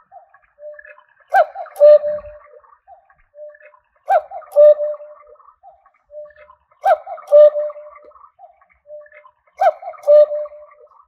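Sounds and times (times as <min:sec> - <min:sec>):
electronic cuckoo call: 0:00.6 - 0:02.6, 0:03.3 - 0:05.4, 0:06.1 - 0:08.1, 0:08.9 - 0:10.9.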